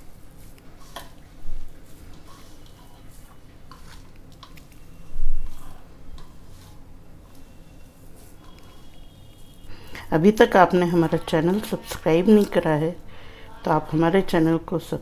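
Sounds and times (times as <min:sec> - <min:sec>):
hand squeezing moist mixture: 0:00.0 - 0:09.7.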